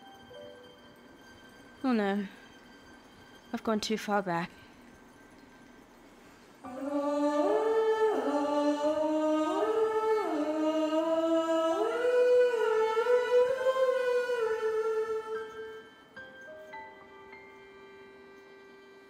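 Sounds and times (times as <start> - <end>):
wordless voice singing: 6.6 - 16.1.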